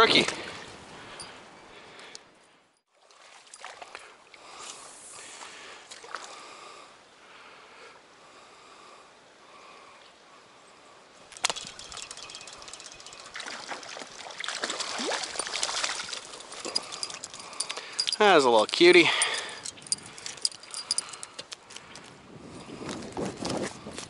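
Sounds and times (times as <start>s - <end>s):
stream water running: 2.9s - 6.7s, 11.1s - 21.3s
splashing and crackling in water: 11.3s - 18.1s.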